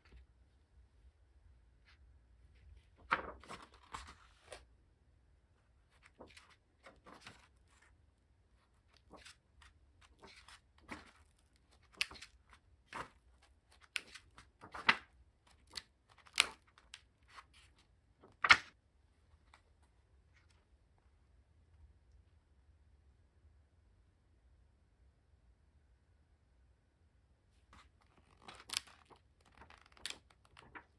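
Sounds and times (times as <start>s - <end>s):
paper pages flicking and rustling: 2.8s - 4.6s, 5.9s - 7.9s, 8.7s - 18.7s, 27.8s - 30.9s.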